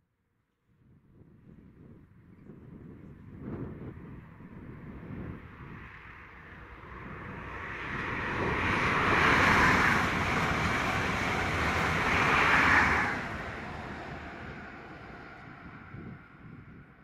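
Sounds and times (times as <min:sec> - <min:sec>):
train passing at speed: 0:03.9 - 0:17.0.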